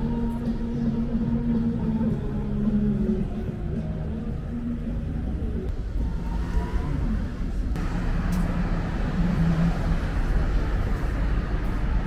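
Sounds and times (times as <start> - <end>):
rush of traffic noise: 3.4 - 12.0
traffic rumbling by: 3.8 - 12.0.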